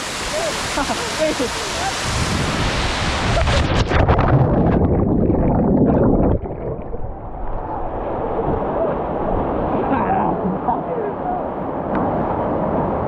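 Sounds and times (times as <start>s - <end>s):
waterfall rushing: 0.0s - 4.2s
muffled underwater churning: 2.5s - 10.7s.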